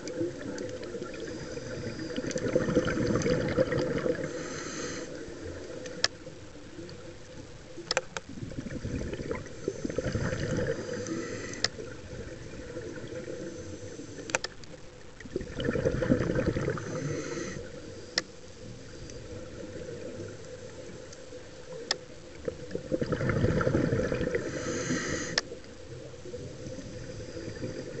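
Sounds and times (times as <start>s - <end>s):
gurgling exhaled bubbles: 0.0s - 4.5s, 8.3s - 13.7s, 15.2s - 17.8s, 22.3s - 25.4s.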